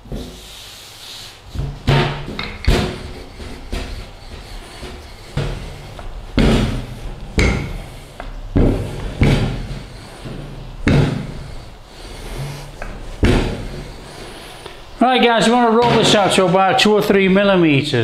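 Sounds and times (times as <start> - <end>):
low rumble of rolling pin: 1.5 - 15.0.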